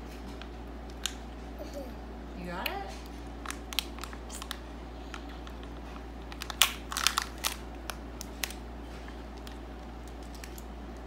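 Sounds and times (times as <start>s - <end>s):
paper wrapper crinkling: 3.4s - 11.0s.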